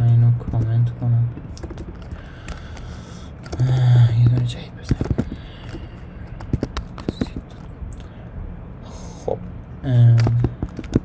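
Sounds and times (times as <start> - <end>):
keyboard typing: 1.5 - 7.7, 10.1 - 11.0.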